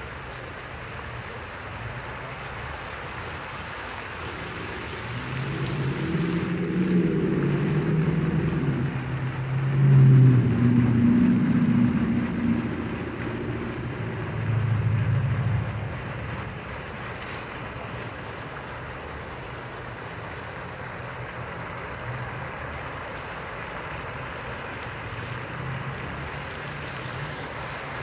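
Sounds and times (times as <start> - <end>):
fountain water splashing: 0.0 - 28.0
low rumble: 4.2 - 18.0.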